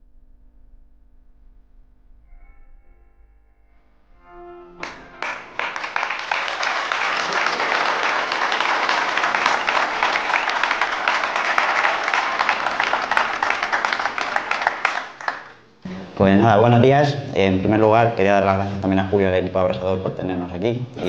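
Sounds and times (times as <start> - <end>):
music: 2.3 - 6.9
audience applauding: 4.8 - 15.7.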